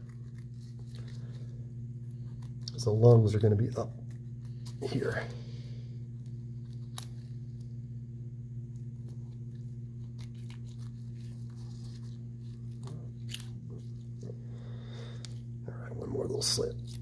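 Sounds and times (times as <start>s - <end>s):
low electrical hum: 0.0s - 17.0s.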